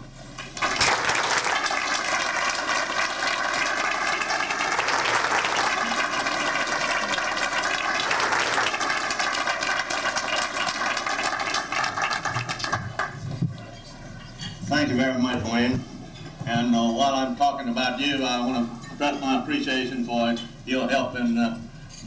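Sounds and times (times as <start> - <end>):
audience applauding: 0.4 - 13.3.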